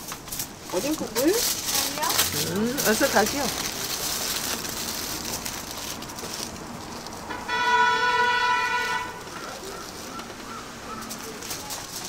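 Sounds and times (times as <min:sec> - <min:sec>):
vehicle horn honking: 0:07.3 - 0:09.3.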